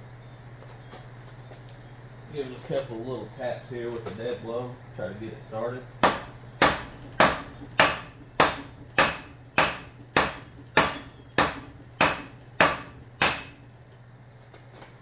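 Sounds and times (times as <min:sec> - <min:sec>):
dead blow hammer striking metal rod: 0:06.0 - 0:13.8.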